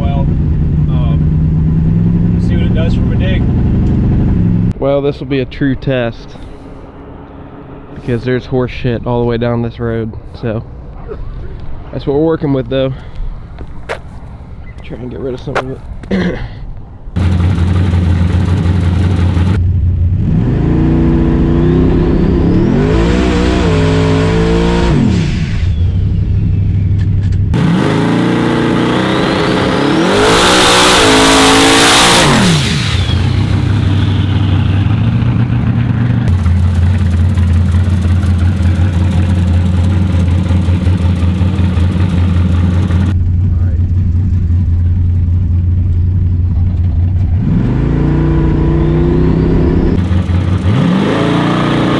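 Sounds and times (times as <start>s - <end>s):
engine revving hard: 20.2s - 25.8s, 27.5s - 35.2s, 47.3s - 51.9s
truck engine idling: 33.0s - 47.2s.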